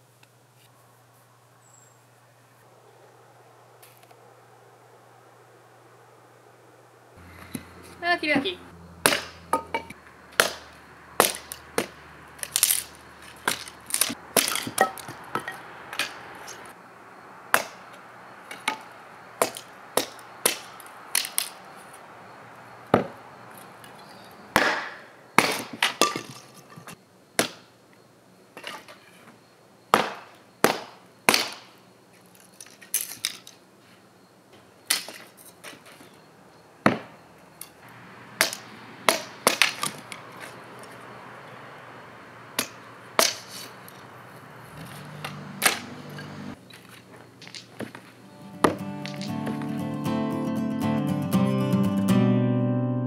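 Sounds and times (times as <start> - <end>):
hatchet chopping kindling on wood: 9.0 - 16.6, 17.5 - 21.6, 22.9 - 23.2, 24.5 - 26.7, 27.4 - 27.7, 29.9 - 31.7, 36.8 - 37.2, 38.4 - 40.6, 42.6 - 43.6, 45.0 - 46.0, 48.6 - 49.6.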